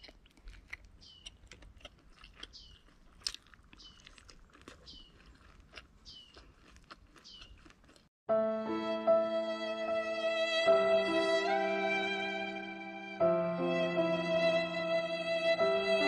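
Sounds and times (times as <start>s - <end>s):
child chewing: 0.0s - 8.1s
violin music: 8.3s - 16.0s.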